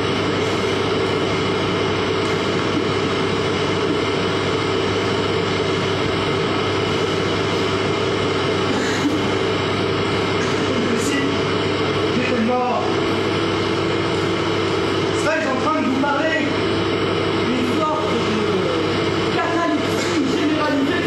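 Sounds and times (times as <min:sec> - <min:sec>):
droning room noise with low hum: 0:00.0 - 0:21.0.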